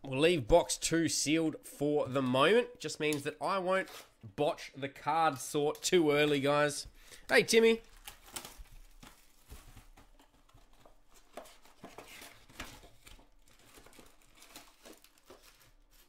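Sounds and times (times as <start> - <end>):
cardboard and wrappers rustling: 7.5 - 16.0.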